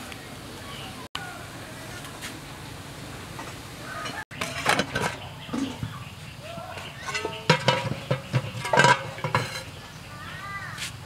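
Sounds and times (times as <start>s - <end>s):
metal cookware clinking: 3.4s - 10.0s.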